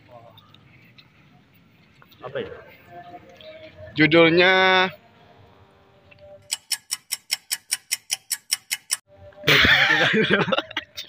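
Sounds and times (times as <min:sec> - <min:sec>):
clock ticking: 0:06.4 - 0:09.1.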